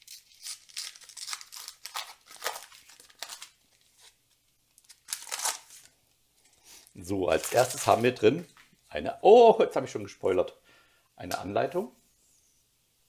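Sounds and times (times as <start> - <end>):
foil pack tearing and crinkling: 0.0 - 3.6, 4.8 - 5.9, 7.4 - 8.1.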